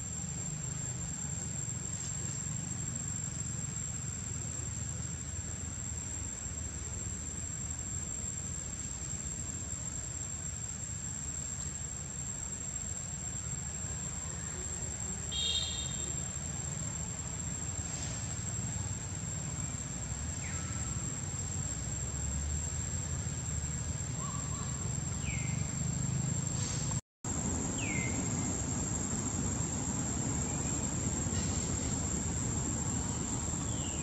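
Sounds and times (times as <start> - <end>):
high-pitched insect drone: 0.0 - 34.0
low outdoor rumble: 16.2 - 34.0.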